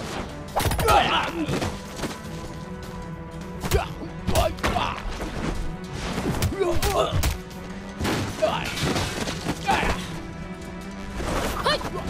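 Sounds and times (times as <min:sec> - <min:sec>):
fighters shouting and grunting: 0:00.6 - 0:01.8, 0:03.6 - 0:05.4, 0:06.4 - 0:07.5, 0:09.5 - 0:10.2.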